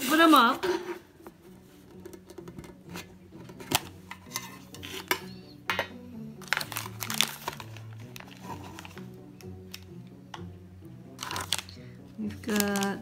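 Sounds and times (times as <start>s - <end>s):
metal tins being opened: 1.9s - 9.0s, 11.2s - 11.7s.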